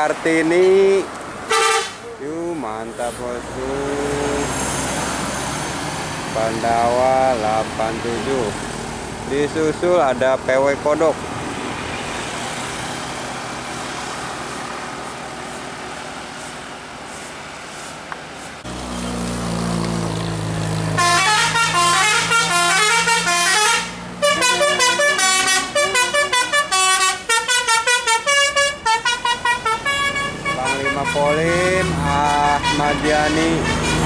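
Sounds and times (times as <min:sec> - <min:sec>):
bus engine drone: 0:00.0 - 0:34.0
road traffic noise: 0:00.0 - 0:34.0
multi-tone horn melody: 0:01.5 - 0:02.2, 0:20.9 - 0:34.0.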